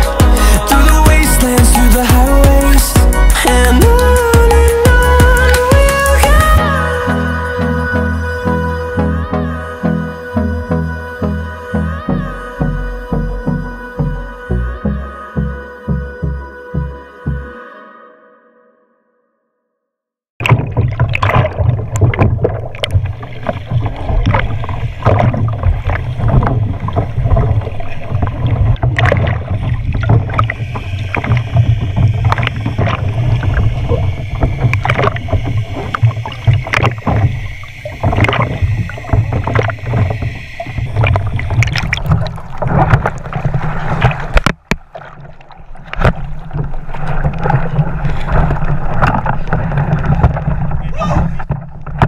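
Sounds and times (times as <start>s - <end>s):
water splashing: 0.0s - 7.4s, 20.4s - 52.0s
steady low rumble: 0.0s - 16.9s, 20.4s - 44.7s.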